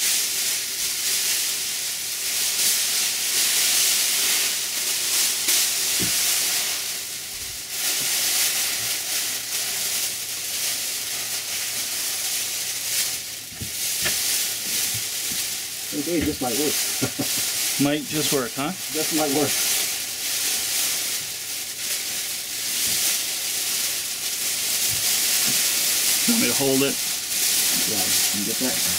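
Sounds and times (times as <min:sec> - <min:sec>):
foil blankets crinkling: 0:00.0 - 0:28.9.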